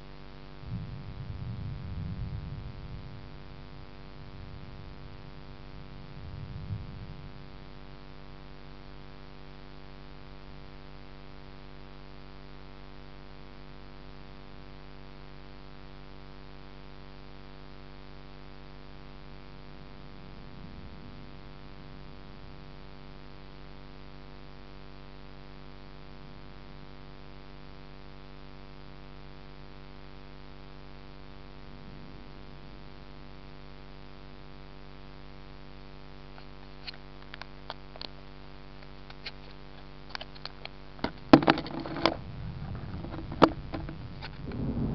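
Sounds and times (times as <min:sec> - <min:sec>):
steady multi-tone hum: 0:00.0 - 0:44.9
distant thunder rumbles: 0:00.6 - 0:07.4, 0:42.2 - 0:44.9.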